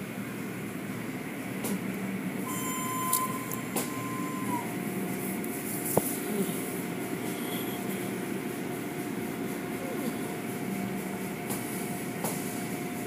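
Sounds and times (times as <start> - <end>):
car wash machinery humming: 0.0 - 13.0
faint thin whine: 2.5 - 4.8.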